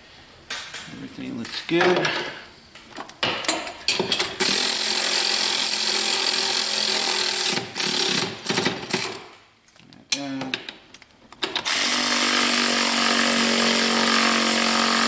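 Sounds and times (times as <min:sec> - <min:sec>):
power tool motor running: 0:11.6 - 0:15.0.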